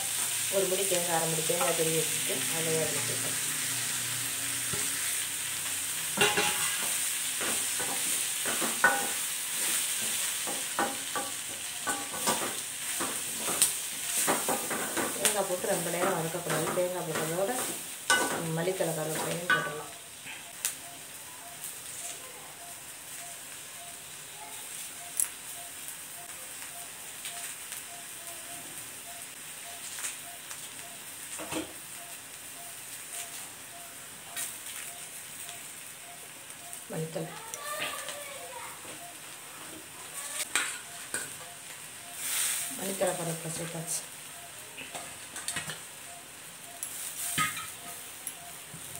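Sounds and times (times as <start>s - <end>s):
frying sizzle: 0.0s - 48.9s
metal spatula scraping pan: 6.1s - 10.2s
crackling pops: 20.5s - 21.0s, 24.7s - 28.4s, 29.1s - 33.5s.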